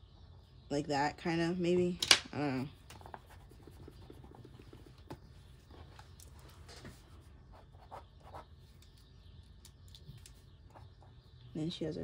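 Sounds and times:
pencil scratching on paper: 3.0 - 4.9, 7.5 - 8.5.

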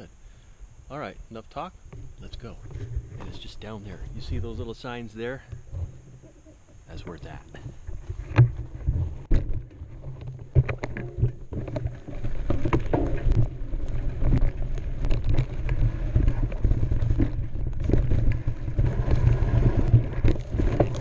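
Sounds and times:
tyres rolling over dirt and rocks: 6.9 - 21.0
bike knocking and rattling: 7.0 - 21.0
wind rumble on microphone: 7.6 - 21.0.

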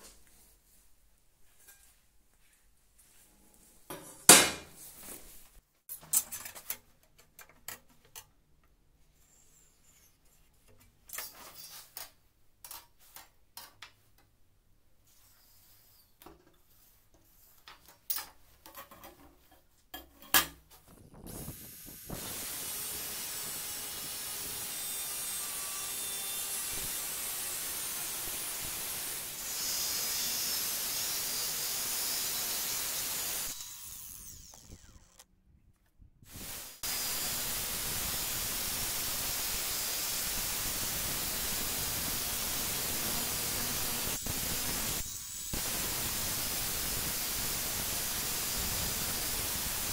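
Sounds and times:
angle grinder cutting steel: 21.5 - 35.2, 36.4 - 49.9.

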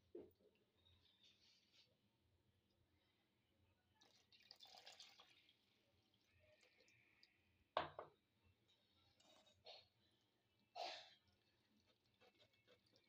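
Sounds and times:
water pouring into flour: 3.8 - 7.6.

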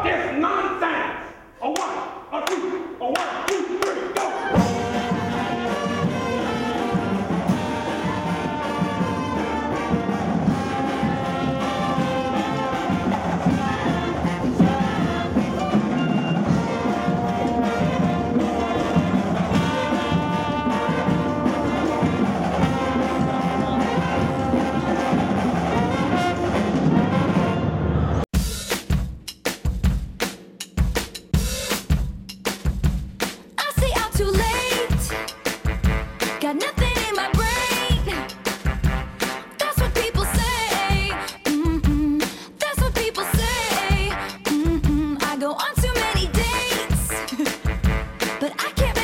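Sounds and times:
brass band playing: 3.8 - 28.3, 34.3 - 42.1, 42.8 - 49.0.

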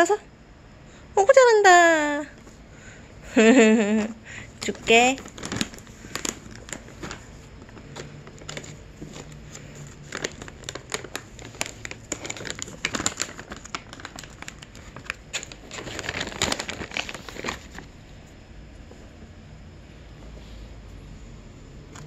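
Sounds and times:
plastic pouch crinkling: 4.5 - 18.0.

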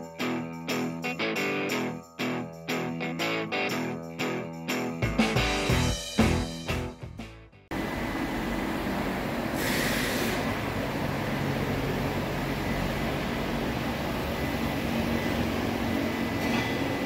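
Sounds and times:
diesel engine running steadily: 7.7 - 17.0
brief hiss: 9.6 - 10.5.

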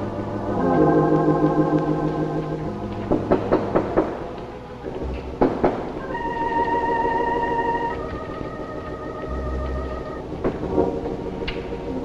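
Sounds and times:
organ holding a chord: 0.0 - 5.0.

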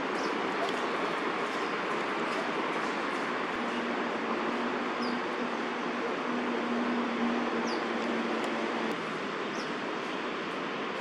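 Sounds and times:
distant city traffic rumble: 0.0 - 11.0.

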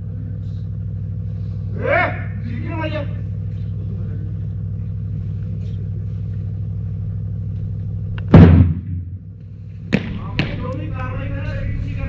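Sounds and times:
engine idling: 0.0 - 12.0
loud rumbling thump: 8.2 - 10.7.

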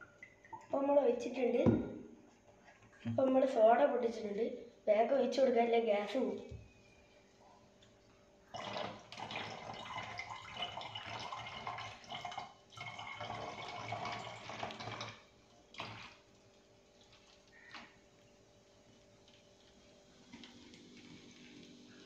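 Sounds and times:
soda water pouring into bottle: 8.5 - 18.0, 19.0 - 22.0.

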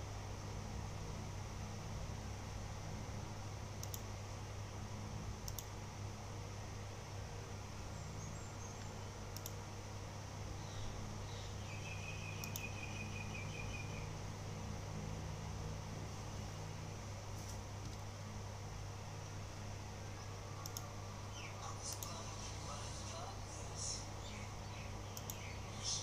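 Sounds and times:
low hum and hiss: 0.0 - 26.0
faint sharp clicks: 3.8 - 4.1, 5.4 - 5.7, 8.8 - 9.6, 12.4 - 12.7, 20.6 - 20.9, 25.1 - 25.5
high chirping warble: 10.7 - 14.1.

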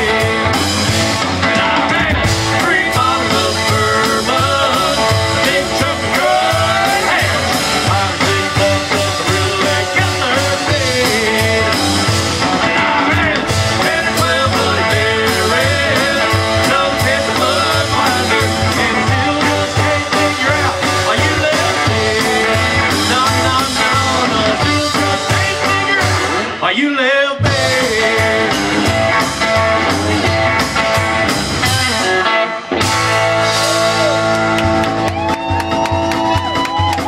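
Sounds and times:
steady drum beat: 0.0 - 26.5, 27.4 - 37.0
electric and acoustic guitars: 0.0 - 26.8, 27.4 - 37.0
bass guitar: 0.0 - 37.0
person singing: 1.4 - 12.0, 12.6 - 28.9.

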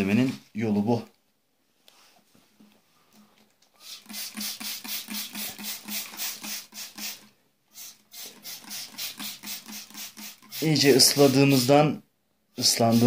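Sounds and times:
spray bottle squirting water: 3.8 - 11.8, 12.6 - 13.0.

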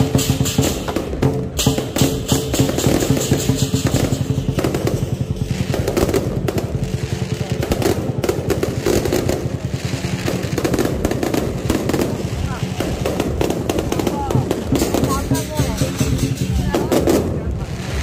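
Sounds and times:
cymbal crashes: 0.0 - 7.1, 11.4 - 18.0
drums beating fast roll: 0.0 - 18.0.

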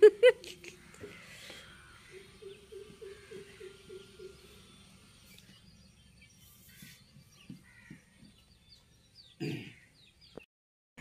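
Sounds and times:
person laughing: 0.0 - 1.1
small birds chirping: 0.3 - 10.5.

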